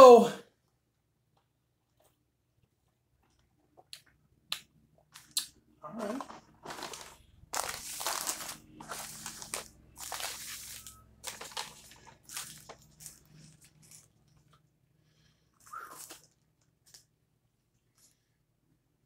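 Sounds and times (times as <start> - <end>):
paper wrappers rustling: 6.0 - 14.5, 15.6 - 17.1.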